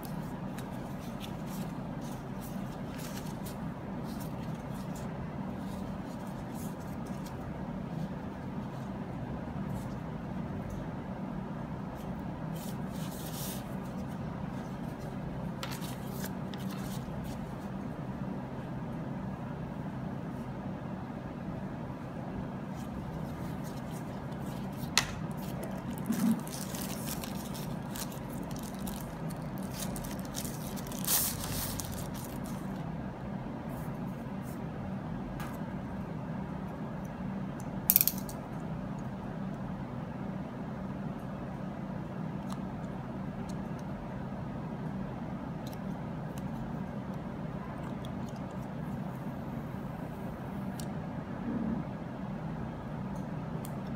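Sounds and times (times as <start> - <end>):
steady low hum: 0.0 - 53.9
rustling of packaging: 22.8 - 32.8.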